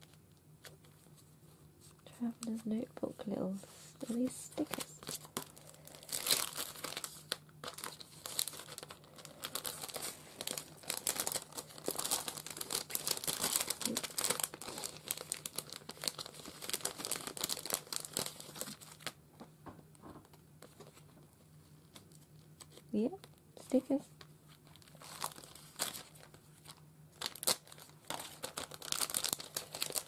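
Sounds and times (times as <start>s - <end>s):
plastic packaging crinkling: 4.0s - 19.2s, 21.8s - 30.0s.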